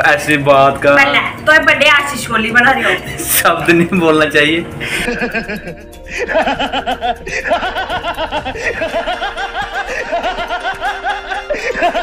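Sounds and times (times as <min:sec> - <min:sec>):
man laughing: 0:04.9 - 0:12.0.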